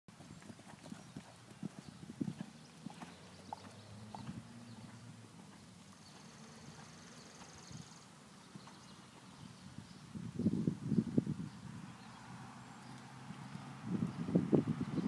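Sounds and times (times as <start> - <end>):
hoofbeats on sand: 0.1 - 9.5.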